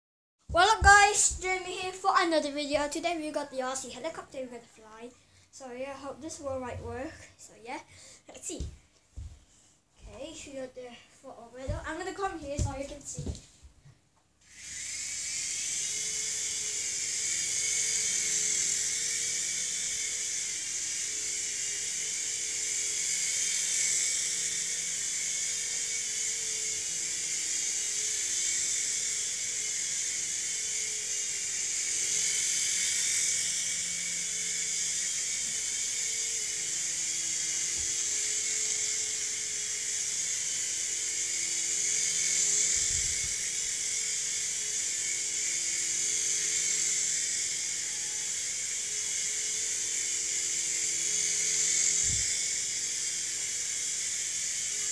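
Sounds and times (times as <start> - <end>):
toy helicopter motor whine: 0.5 - 13.5, 14.4 - 54.9.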